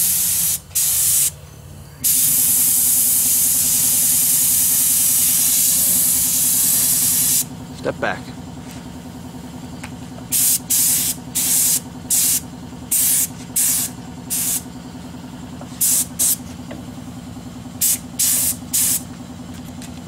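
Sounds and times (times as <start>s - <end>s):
spray gun hissing bursts: 0.0s - 1.4s, 2.0s - 7.5s, 10.3s - 14.6s, 15.8s - 16.4s, 17.8s - 19.1s
steady low hum: 0.0s - 20.0s.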